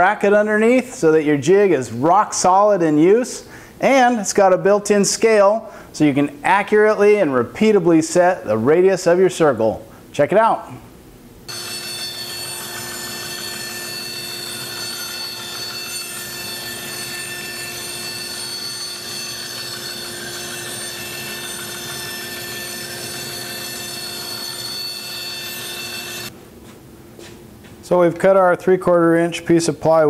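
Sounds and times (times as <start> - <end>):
bandsaw cutting plywood: 11.5 - 26.3.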